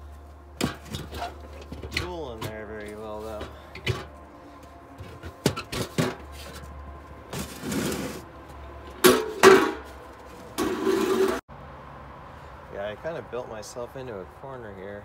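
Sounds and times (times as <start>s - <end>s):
metal can scraping on ground: 7.3s - 11.4s
metal can and lid clanking: 9.0s - 9.9s, 10.6s - 11.4s.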